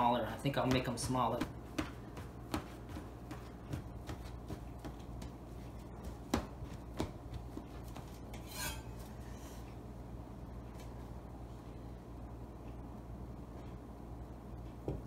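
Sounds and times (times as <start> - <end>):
metal scraper scraping counter: 8.4 - 8.9.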